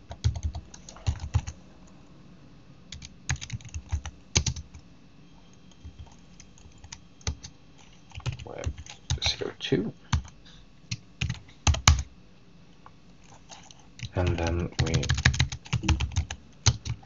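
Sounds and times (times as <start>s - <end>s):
typing on computer keyboard: 0.1s - 1.5s, 2.9s - 4.7s, 5.7s - 9.2s, 10.1s - 12.1s, 13.5s - 17.0s.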